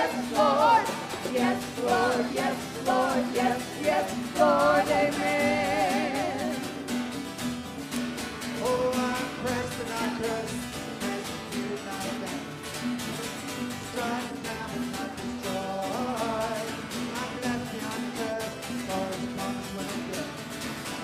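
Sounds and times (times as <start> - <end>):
group of singers with vibrato: 0.0 - 6.8.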